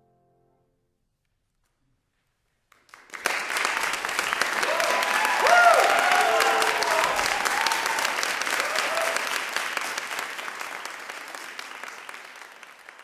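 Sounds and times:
audience applauding: 2.7 - 13.0.

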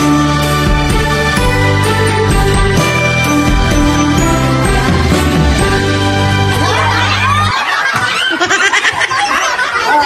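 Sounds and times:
music with steady beat: 0.0 - 7.0.

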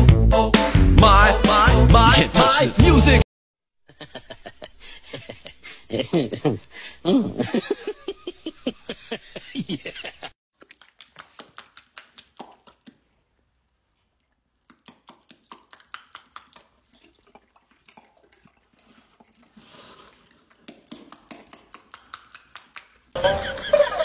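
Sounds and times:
music: 0.0 - 3.2
horse smacking its lips: 10.6 - 13.2, 13.9 - 23.2.

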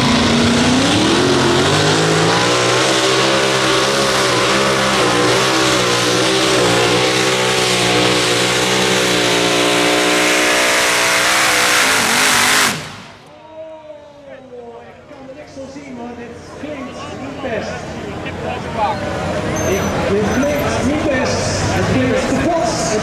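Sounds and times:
tractor engine running at full power: 0.0 - 13.3.

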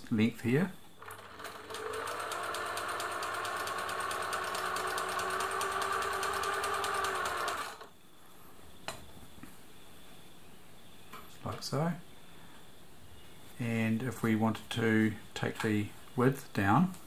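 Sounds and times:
sewing machine running: 1.0 - 7.9.

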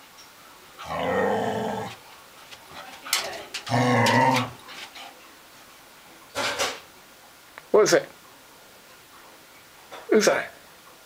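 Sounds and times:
dog growling: 0.8 - 2.1, 2.7 - 5.1.

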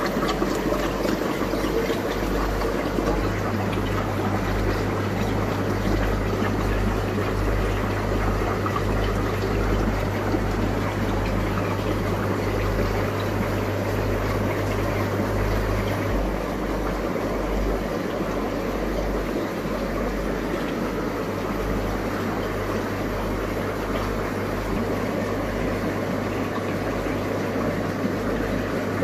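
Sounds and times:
low electrical hum: 0.0 - 29.0
moving water wash: 0.0 - 29.0.

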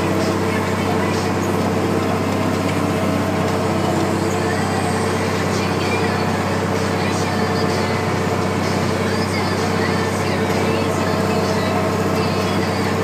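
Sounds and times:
tractor diesel engine under load: 0.0 - 13.0.

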